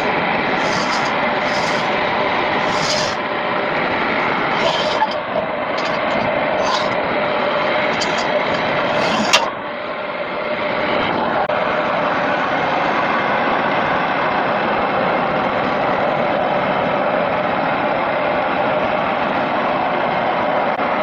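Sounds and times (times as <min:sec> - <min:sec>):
wood lathe motor whirring: 0:00.0 - 0:09.6.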